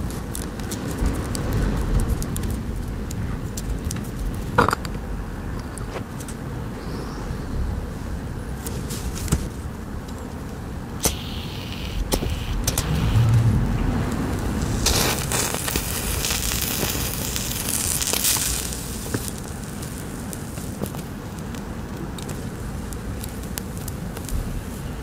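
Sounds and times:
matches flaring with a hiss: 0:10.9 - 0:25.0
sharp clicks: 0:11.0 - 0:13.6.

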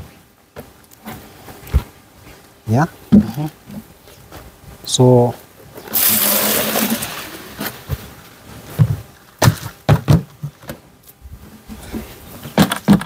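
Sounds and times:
grain pouring into plastic bucket: 0:05.9 - 0:07.5
plastic buckets knocking and thudding: 0:08.7 - 0:10.9, 0:11.8 - 0:13.0.

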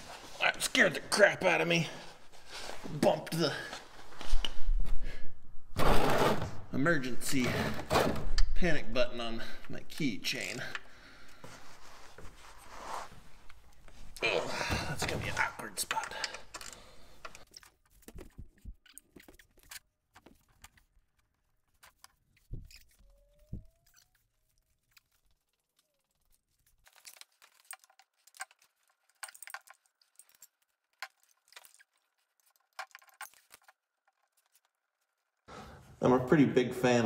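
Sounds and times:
tools clicking and knocking: 0:26.9 - 0:34.5.

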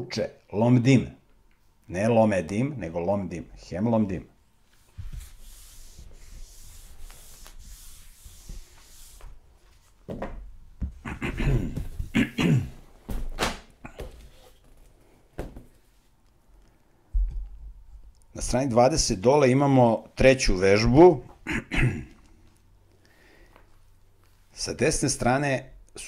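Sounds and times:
eraser scrubbing whiteboard: 0:04.8 - 0:09.4.

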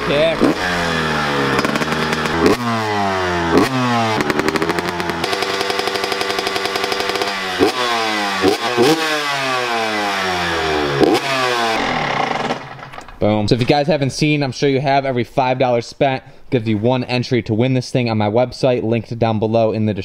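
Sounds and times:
dirt bike engine revving: 0:00.0 - 0:12.9.

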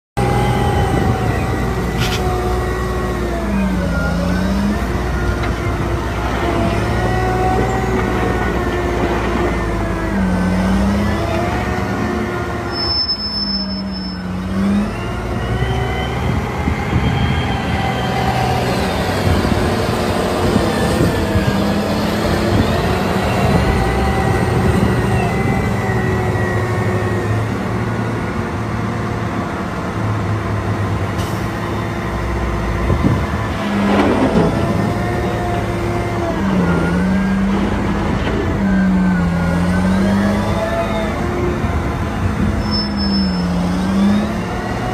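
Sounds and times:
wheel loader diesel engine revving: 0:00.2 - 0:44.9.

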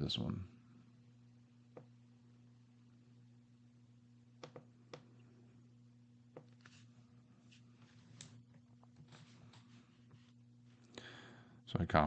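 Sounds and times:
low steady hum: 0:00.0 - 0:12.0
computer mouse clicks: 0:04.4 - 0:05.1.

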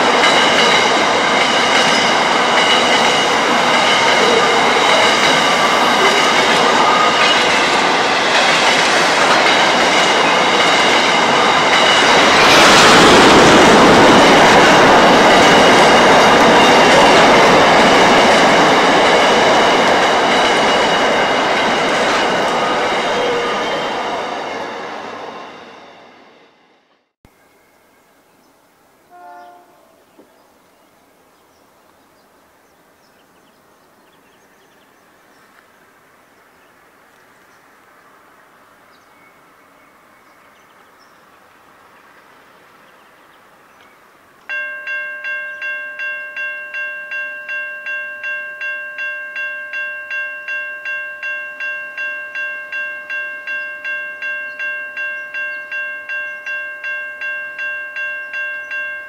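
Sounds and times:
level crossing warning bell: 0:00.0 - 0:26.1, 0:44.5 - 0:59.0.

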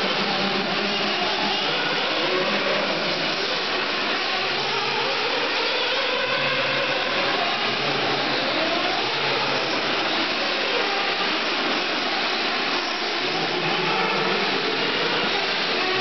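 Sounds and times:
small nitro engines whining: 0:00.0 - 0:16.0.

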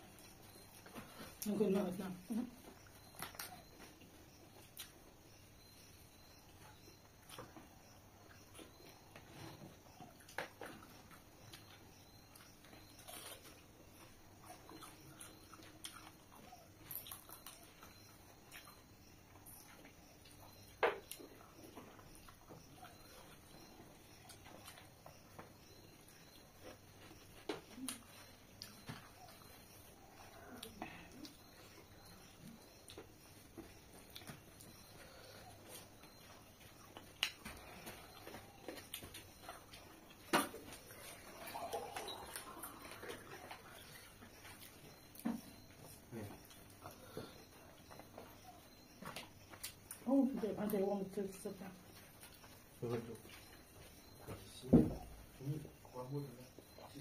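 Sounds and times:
chewing and lip smacks: 0:10.0 - 0:50.0.

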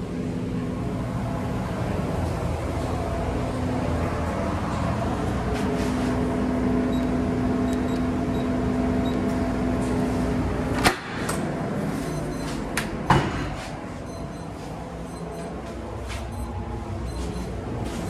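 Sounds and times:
electrical hum: 0:00.0 - 0:18.0.

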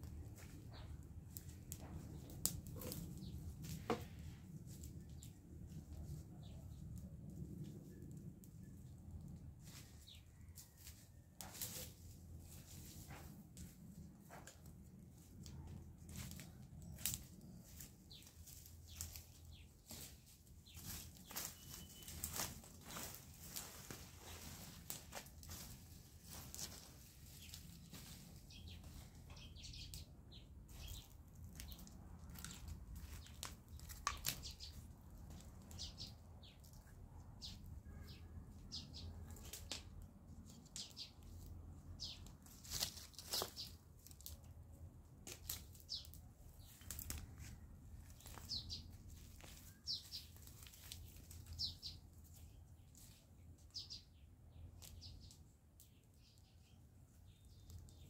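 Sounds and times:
dry brush rustling and crackling: 0:00.0 - 0:06.5, 0:07.4 - 0:54.0
high bird chirps: 0:21.6 - 0:22.2.

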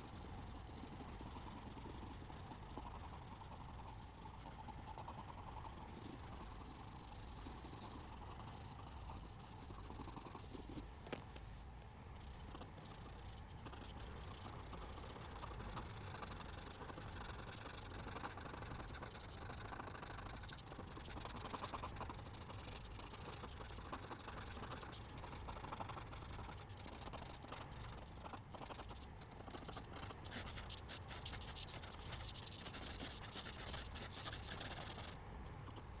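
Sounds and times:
pencil scratching on paper: 0:12.2 - 0:35.8.

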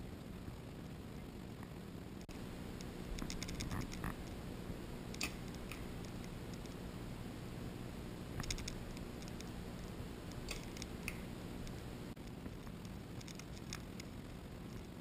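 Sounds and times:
faint clicks: 0:01.6 - 0:06.8, 0:08.3 - 0:15.0
low rumble: 0:02.3 - 0:12.2.

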